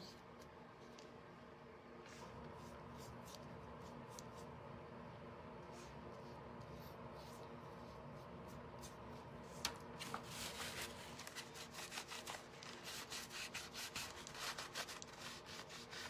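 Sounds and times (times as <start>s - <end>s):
paper towel rubbing wood: 10.2s - 16.0s.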